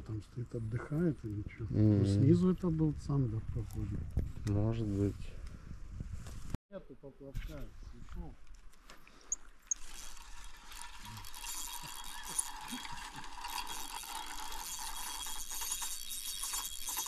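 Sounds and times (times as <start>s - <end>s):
fishing reel whirring: 9.3s - 17.0s.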